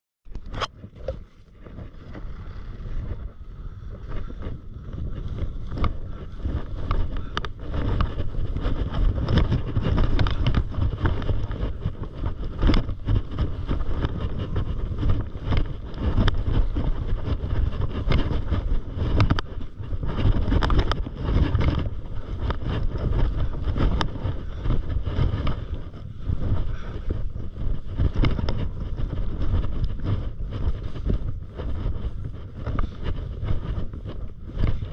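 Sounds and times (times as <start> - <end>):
wind buffeting microphone: 0.3 - 34.9
skis crunching on snow: 1.3 - 34.9.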